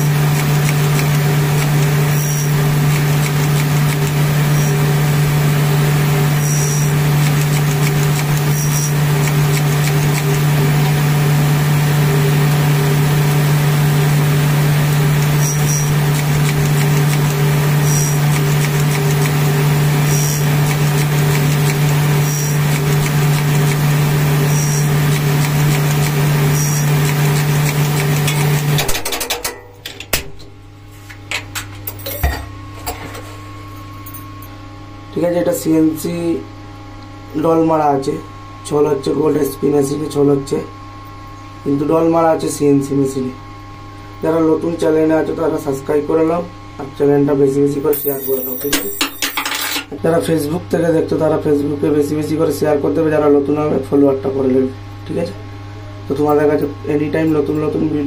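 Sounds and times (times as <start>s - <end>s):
machine motor hum: 0.0s - 29.0s.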